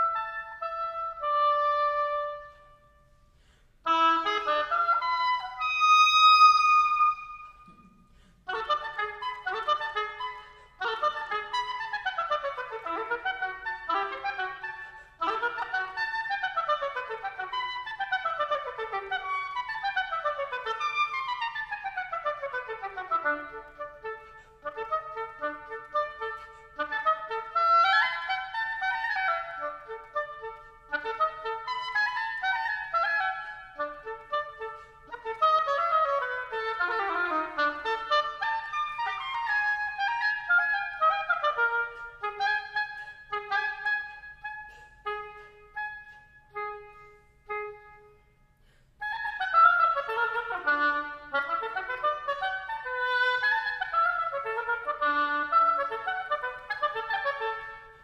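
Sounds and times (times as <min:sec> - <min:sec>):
solo clarinet playing: 0:00.0 - 0:03.2, 0:03.8 - 0:58.0.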